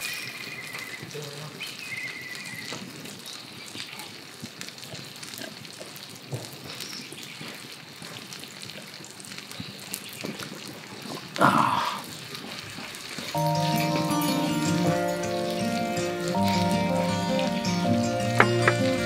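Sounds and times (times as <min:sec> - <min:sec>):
campfire crackling: 0:00.0 - 0:19.0
fire pops: 0:00.8 - 0:13.5
person exhaling after drinking: 0:11.4 - 0:12.1.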